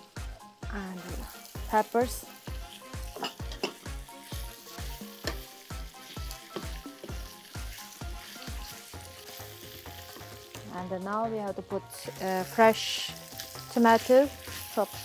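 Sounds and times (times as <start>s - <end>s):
background music beat: 0.0s - 15.0s
stir-fry sizzling in pan: 0.0s - 15.0s.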